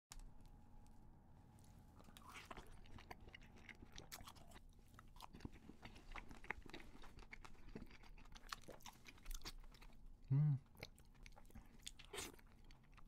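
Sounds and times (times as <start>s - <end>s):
person biting and chewing: 2.0s - 9.9s.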